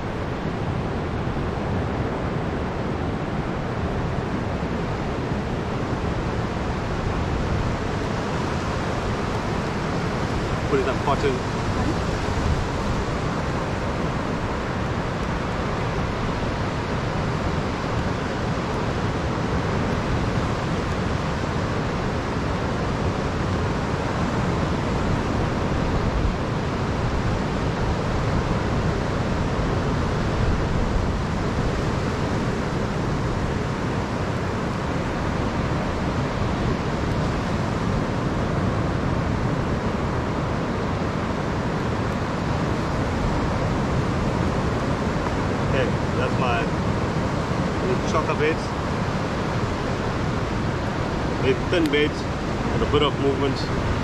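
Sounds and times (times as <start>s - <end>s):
ocean surf breaking: 0.0s - 54.0s
wind: 0.0s - 54.0s.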